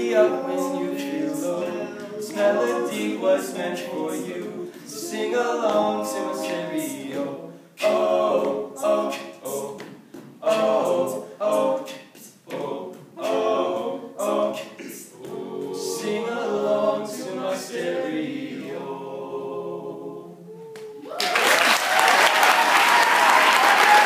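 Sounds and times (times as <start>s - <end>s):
vocal percussion hits: 0.0s - 16.7s
male group singing in harmony: 0.0s - 20.5s.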